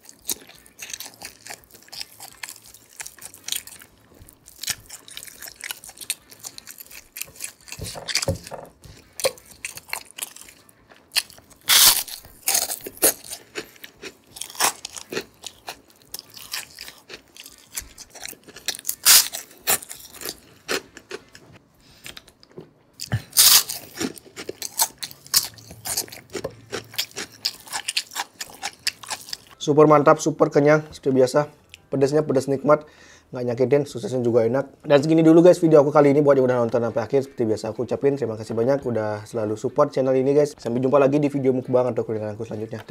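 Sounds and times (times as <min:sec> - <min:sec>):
person chewing crisp food: 0:00.0 - 0:29.6.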